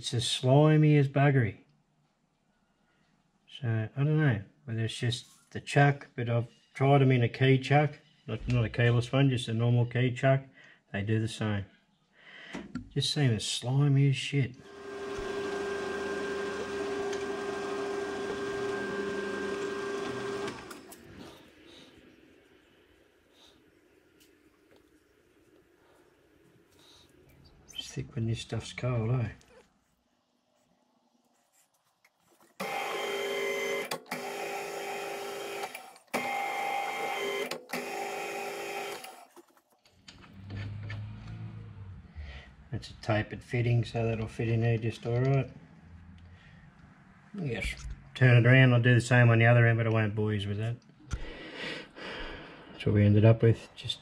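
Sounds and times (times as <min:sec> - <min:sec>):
drill cutting through metal: 0:14.6 - 0:20.9, 0:32.6 - 0:39.2
metal lathe whining: 0:14.6 - 0:21.0.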